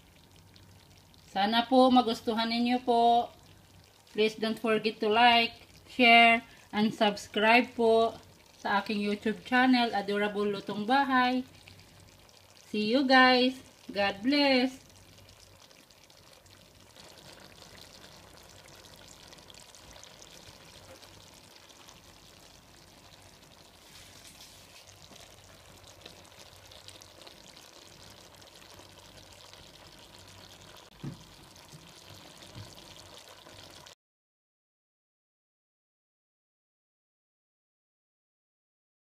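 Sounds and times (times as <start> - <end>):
vegetables sizzling in a wok: 1.4 - 34.0.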